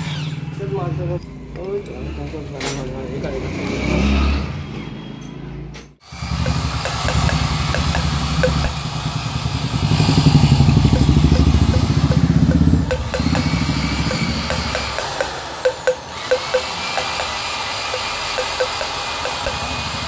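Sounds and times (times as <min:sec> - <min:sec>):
engine idling: 0:06.2 - 0:20.0.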